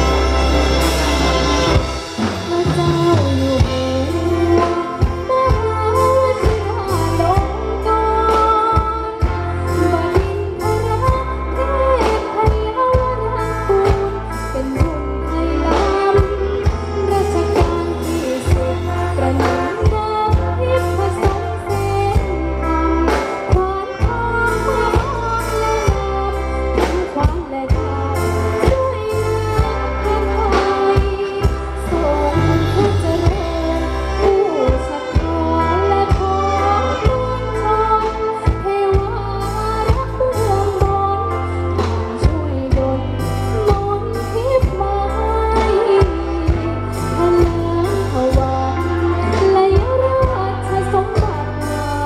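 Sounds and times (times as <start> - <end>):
steady drum beat: 0.0 - 7.6
deep bass line: 0.0 - 52.0
person singing: 0.0 - 52.0.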